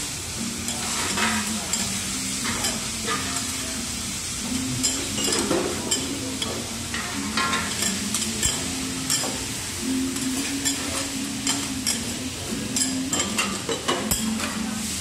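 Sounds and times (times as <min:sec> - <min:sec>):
food sizzling: 0:00.0 - 0:15.0.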